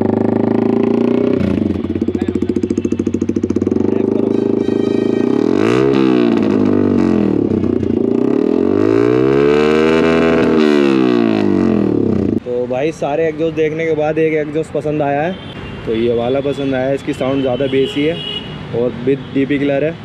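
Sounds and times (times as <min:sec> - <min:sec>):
motorcycle engine idling: 0:00.0 - 0:05.4
motorcycle engine revving: 0:00.0 - 0:12.4.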